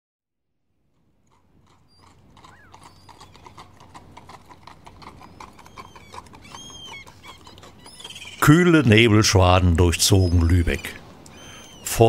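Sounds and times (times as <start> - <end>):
horse hooves clopping: 0.9 - 12.0
short high calls: 5.3 - 12.0.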